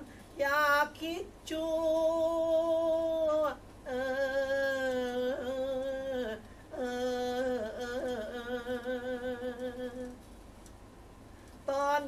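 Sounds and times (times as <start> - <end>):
man singing long notes: 0.0 - 10.2
singer breathing: 6.4 - 6.8.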